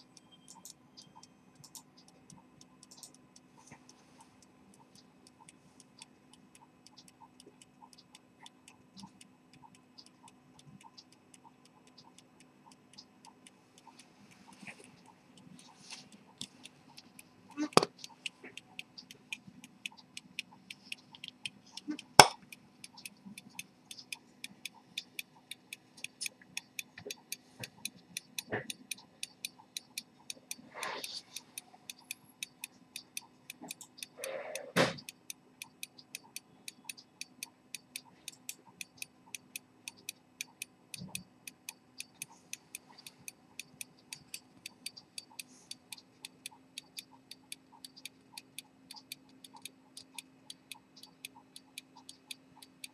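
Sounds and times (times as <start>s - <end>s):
pocket watch ticking: 0.0s - 52.9s
sharp click: 20.8s - 30.1s.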